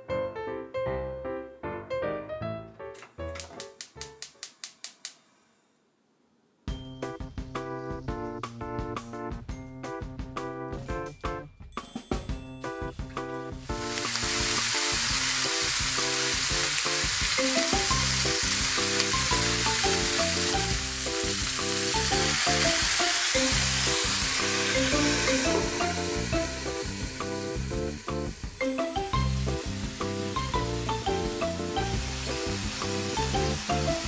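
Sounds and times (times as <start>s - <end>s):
background music: 0.0s - 4.4s, 6.7s - 34.0s
meat sizzling in frying pan: 13.6s - 34.0s.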